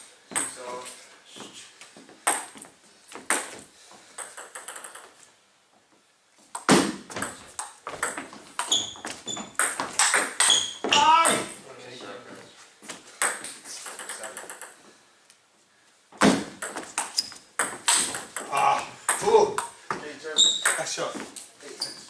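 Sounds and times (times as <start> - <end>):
ping pong ball bouncing: 4.2 - 5.1, 6.6 - 11.5, 13.2 - 14.8, 16.5 - 19.8, 20.5 - 20.9
ping pong rally clicks: 4.2 - 5.1, 9.6 - 10.6, 13.2 - 14.8, 16.6 - 19.8
paddle hitting ping pong ball: 9.6 - 11.6, 13.2 - 14.8, 16.2 - 19.8.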